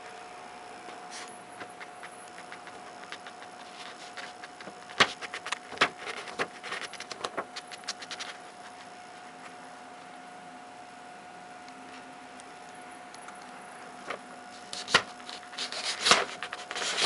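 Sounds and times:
paper rustling and crackling: 1.1 - 9.6, 14.0 - 17.0.

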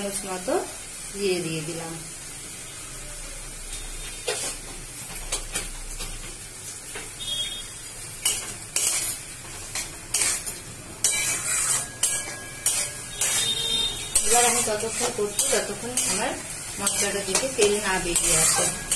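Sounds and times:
low sizzle: 0.0 - 18.9
metal spatula scraping a wok: 4.1 - 4.7, 8.2 - 18.9
spatula clanking against pan: 9.7 - 18.9.

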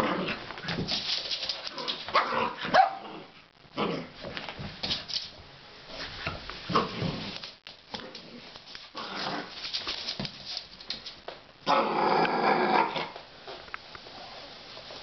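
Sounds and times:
puppy growling: 11.7 - 13.2.

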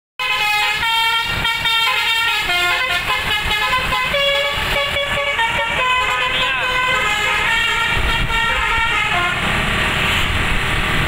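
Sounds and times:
multi-tone horn playing tune: 0.2 - 9.5
vehicle noise: 0.2 - 11.0.

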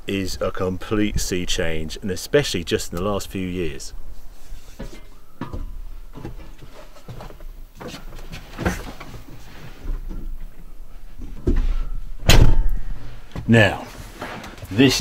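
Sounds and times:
knocks and thumps in tractor cab: 4.8 - 10.6
loud sharp knock: 12.2 - 12.8.

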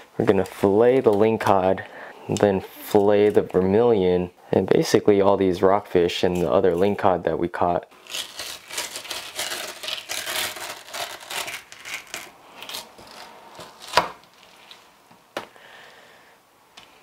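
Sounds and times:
knife slicing and scraping fish: 8.1 - 14.1.

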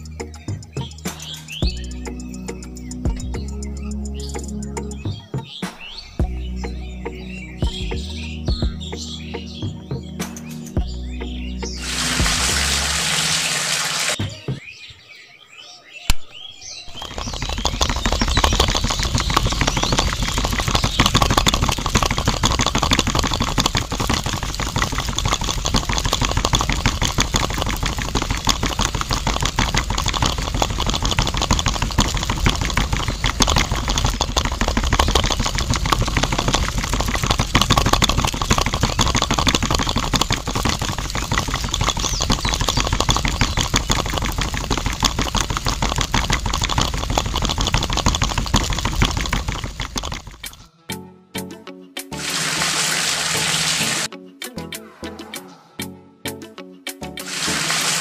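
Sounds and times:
small electric motor buzzing rattle: 11.8 - 14.2, 16.9 - 50.7, 57.3 - 58.0.

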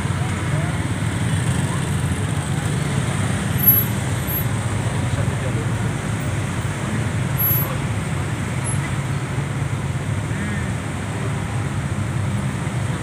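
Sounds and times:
traffic engines idling: 0.0 - 13.0.

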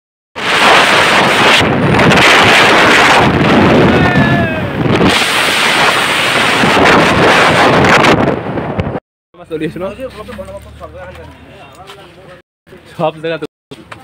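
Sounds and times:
wind rushing over microphone: 0.4 - 9.0
motorcycle road noise: 6.8 - 13.0.

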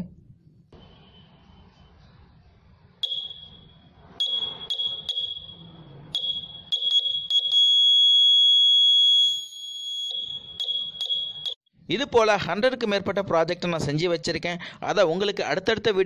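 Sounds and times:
piezo buzzer beeping: 4.2 - 5.6.

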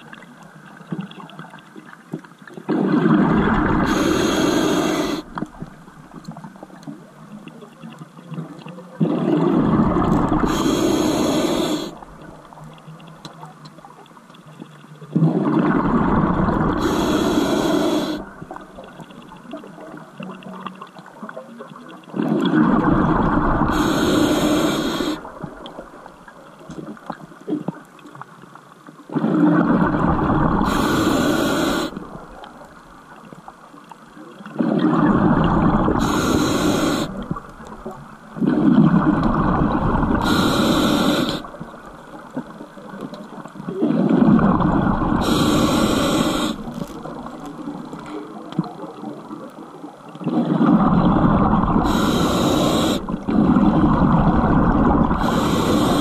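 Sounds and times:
diver exhaling bubbles: 2.7 - 5.6, 9.0 - 12.1, 15.2 - 18.6, 29.1 - 32.3, 34.6 - 41.6, 43.7 - 47.8, 50.2 - 56.0.

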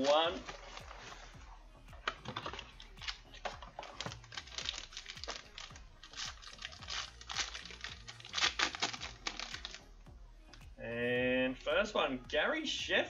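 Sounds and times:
foil pack being opened: 2.2 - 9.8.

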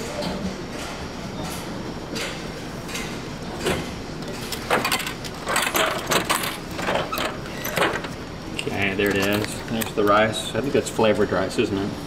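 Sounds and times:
vending machine clicks and clacks: 0.0 - 10.4.

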